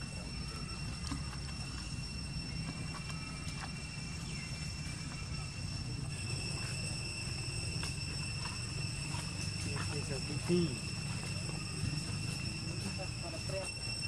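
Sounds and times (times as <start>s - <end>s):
high-pitched whine: 0.0s - 14.0s.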